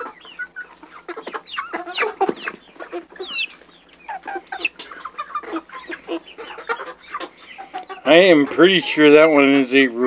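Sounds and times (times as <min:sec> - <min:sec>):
young chickens clucking: 0:00.0 - 0:10.0.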